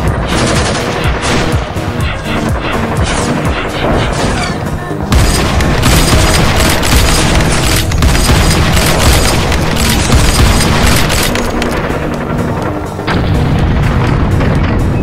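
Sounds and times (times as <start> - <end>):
cinematic music: 0.0 - 15.0
heavy booming low hits: 13.0 - 15.0.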